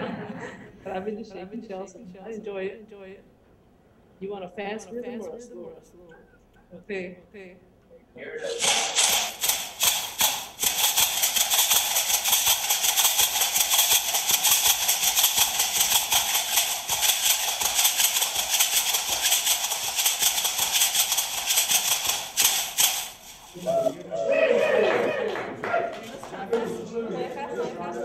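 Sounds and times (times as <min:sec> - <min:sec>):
shell shaker leg rattles: 0:08.5 - 0:24.0.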